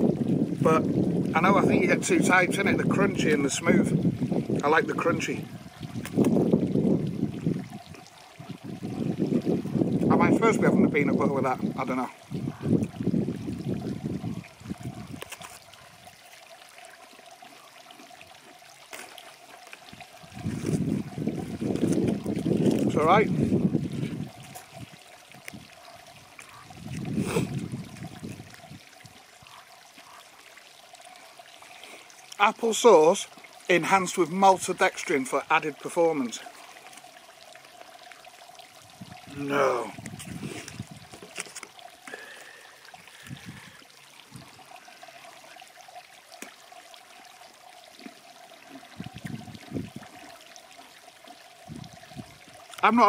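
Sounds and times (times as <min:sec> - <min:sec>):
mouth and pouch handling sounds: 0:15.2 - 0:15.8.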